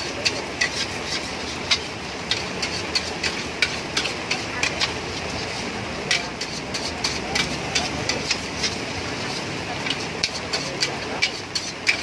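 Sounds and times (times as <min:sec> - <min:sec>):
metal spatula scraping a wok: 0:00.0 - 0:12.0.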